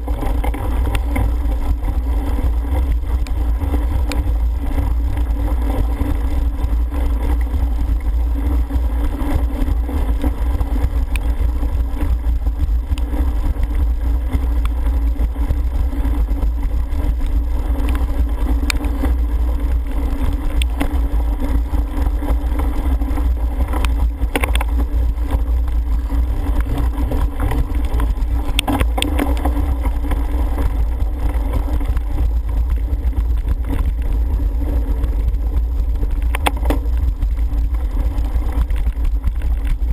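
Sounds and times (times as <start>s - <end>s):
bike rattling: 0.0s - 39.9s
wind buffeting camera: 0.0s - 39.9s.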